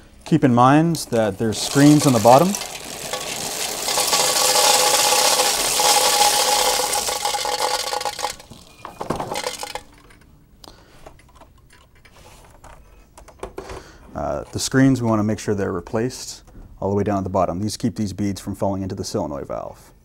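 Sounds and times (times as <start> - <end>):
beads pouring into trash can: 0.9 - 10.1
beads clicking and rattling: 1.3 - 10.2.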